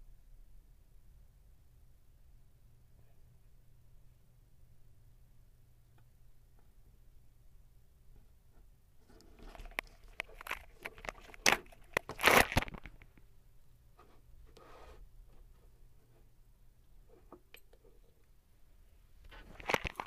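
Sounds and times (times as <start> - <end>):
hand handling battery and leads: 9.2 - 13.2, 19.3 - 20.0.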